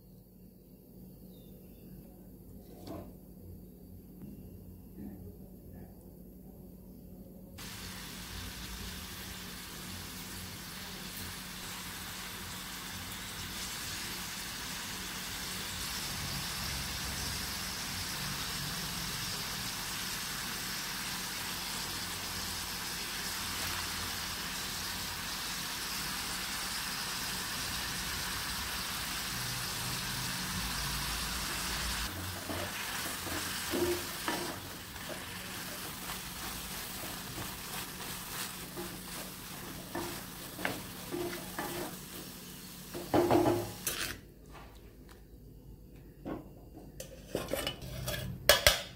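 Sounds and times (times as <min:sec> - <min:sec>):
tomatoes sizzling in oil: 0:07.6 - 0:44.2.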